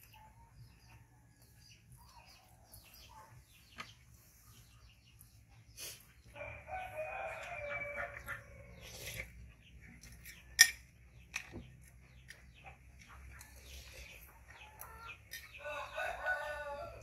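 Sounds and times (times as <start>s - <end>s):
rooster crowing: 6.4s - 8.8s, 15.6s - 17.0s.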